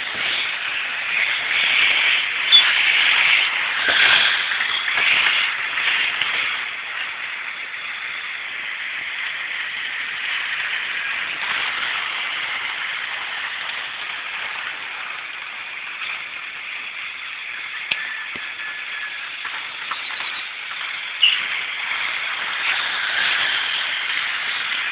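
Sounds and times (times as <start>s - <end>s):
model trains running on track: 0.0s - 24.9s.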